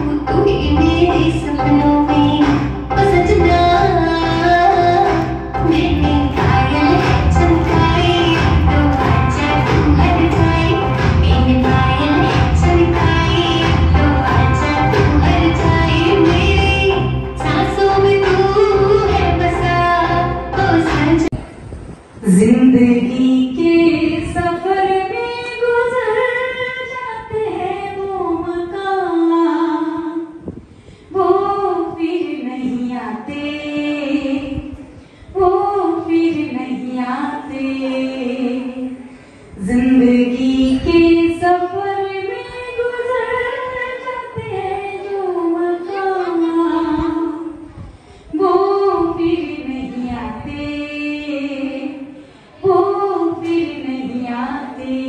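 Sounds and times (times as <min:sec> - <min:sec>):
woman singing unaccompanied: 0:00.0 - 0:21.4, 0:22.2 - 0:30.5, 0:31.1 - 0:55.0
singer breathing: 0:30.5 - 0:31.2, 0:34.8 - 0:35.4, 0:39.0 - 0:39.6, 0:47.7 - 0:48.4, 0:52.1 - 0:52.7.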